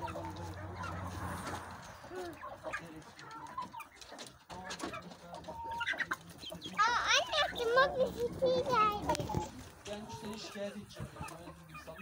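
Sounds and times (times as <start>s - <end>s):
hens clucking: 0.0s - 12.0s.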